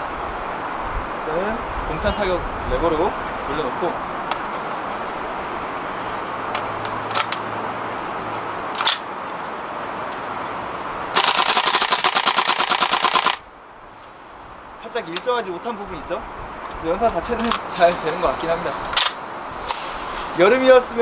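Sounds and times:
gun handling clicks: 6.5 - 7.5, 8.3 - 9.4, 11.2 - 13.4, 15.1 - 15.4, 17.4 - 19.8
airsoft gun rattling on full auto: 8.7 - 9.1, 11.1 - 13.4.

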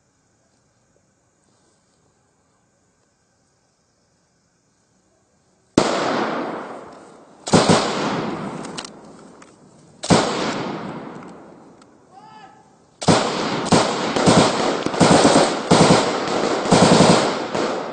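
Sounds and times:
loud gunshots with echo: 5.8 - 8.6, 10.0 - 11.6, 13.0 - 17.9.

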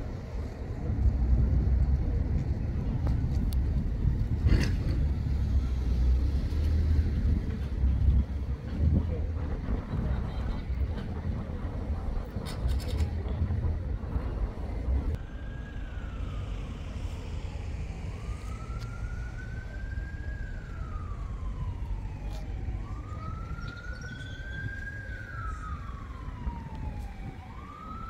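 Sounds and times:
steady low rumble: 0.0 - 6.0, 7.0 - 28.0
siren wailing: 15.1 - 28.0.

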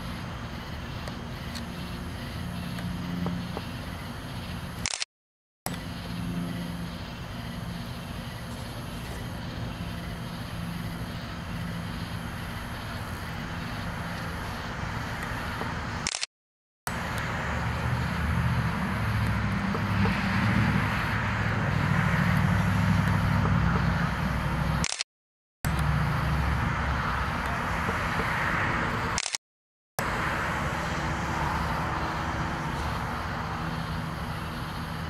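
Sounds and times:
low hum and hiss: 5.7 - 16.0.

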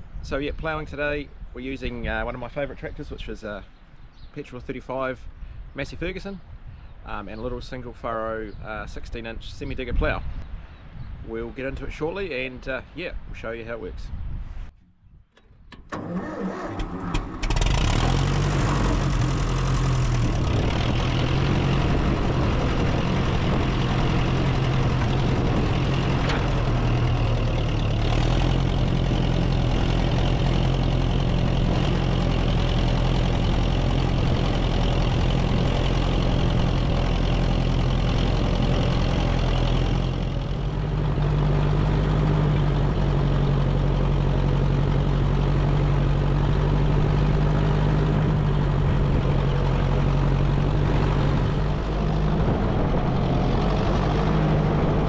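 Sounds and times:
tractor engine running: 14.8 - 55.0.

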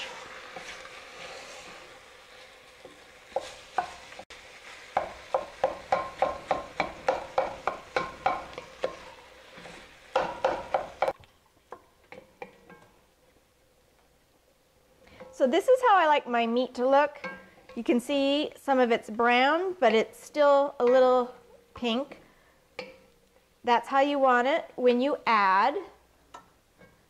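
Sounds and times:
wooden spoon stirring meat: 0.0 - 13.4
meat sizzling in a pot: 0.0 - 14.0, 14.8 - 27.0
spoon knocking against pot: 5.0 - 9.1, 10.1 - 13.0.

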